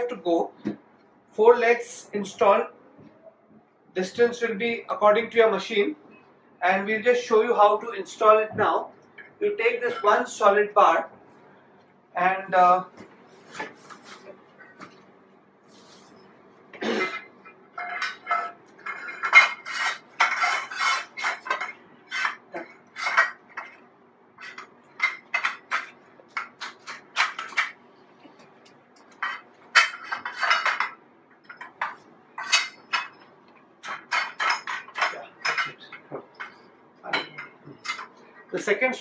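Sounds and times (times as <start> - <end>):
metal bars clanking and rattling: 17.8 - 20.4.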